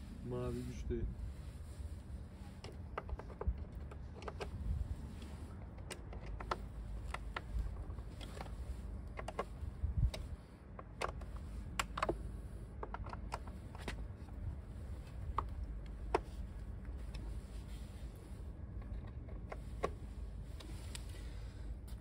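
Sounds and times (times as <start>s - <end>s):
low steady rumble: 0.0s - 22.0s
hands clicking and tapping parts: 2.6s - 4.6s, 5.2s - 14.4s.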